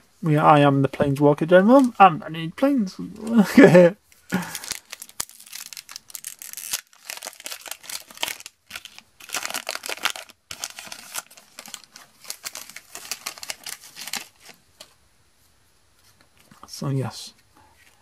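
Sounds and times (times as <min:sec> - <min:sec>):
foil wrapper tearing and crinkling: 0:04.3 - 0:14.6.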